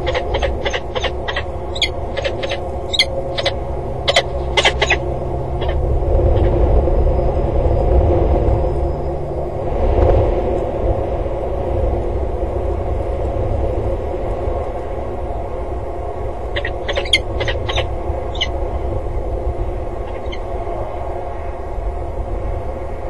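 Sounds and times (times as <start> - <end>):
falcon calls: 0.0 - 6.5, 16.6 - 18.5, 20.1 - 20.5
low rumble: 0.0 - 23.0.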